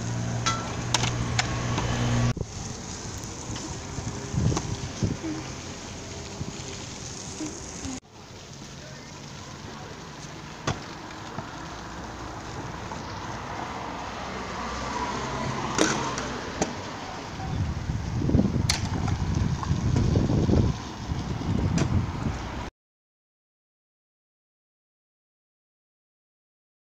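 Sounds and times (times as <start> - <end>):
scooter wheels rolling on paving: 0.0 - 22.4
wind on microphone: 1.2 - 8.0, 17.4 - 22.7.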